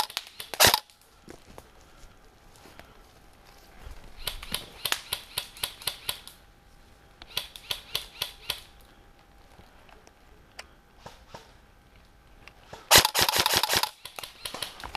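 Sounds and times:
airsoft rifle shots: 0.0s - 0.9s, 12.9s - 14.8s.

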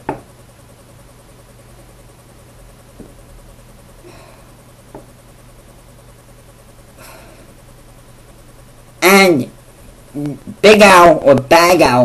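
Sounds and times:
low hum and hiss: 0.0s - 12.0s.

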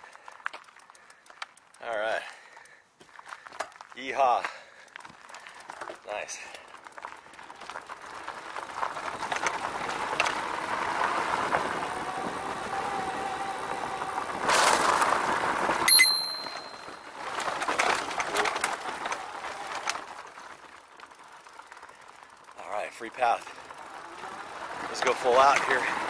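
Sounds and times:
bike rolling over dirt trail: 0.0s - 26.0s
sharp metallic clink: 15.9s - 16.8s.

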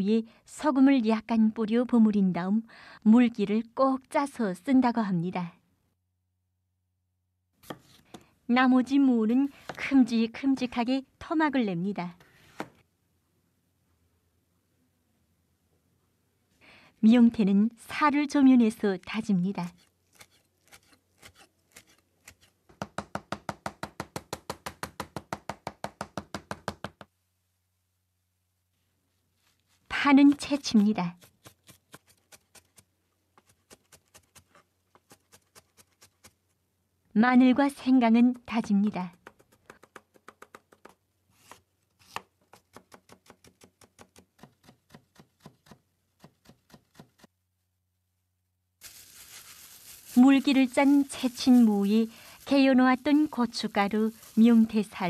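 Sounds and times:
knife chopping on cutting board: 7.6s - 8.2s.

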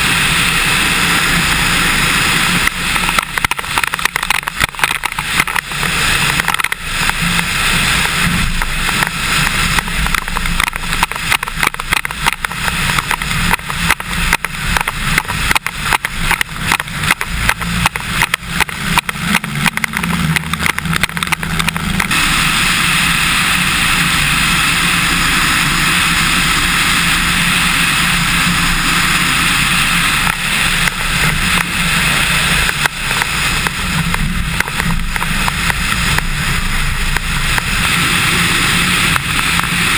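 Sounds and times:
small plane engine and propeller: 0.0s - 39.9s.

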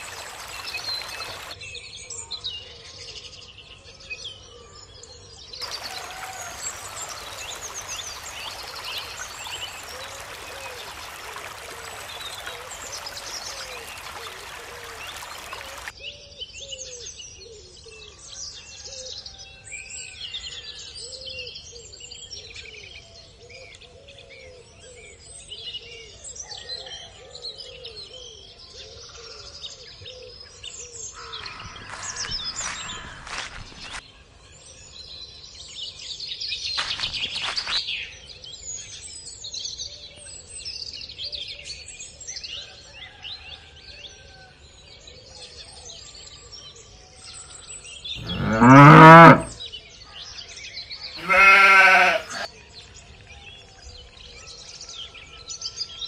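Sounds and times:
small birds chirping: 0.0s - 1.6s, 5.6s - 15.9s, 51.2s - 52.5s.

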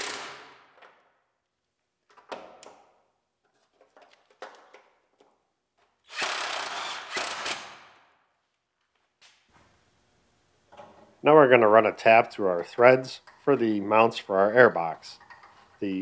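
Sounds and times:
cordless power tool driving bolts: 0.0s - 0.6s, 6.1s - 7.8s
light clicks and knocks of tools: 15.2s - 15.8s.

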